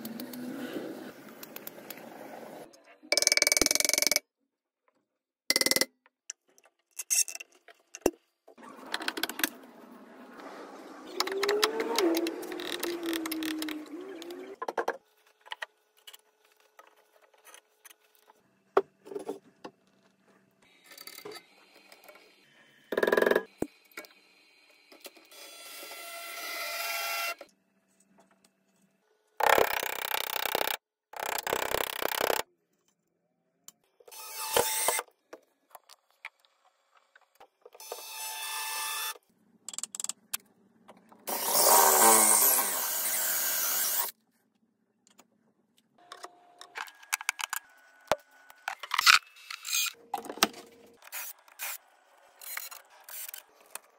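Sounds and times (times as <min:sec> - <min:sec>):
power tool running: 0:41.3 - 0:44.1.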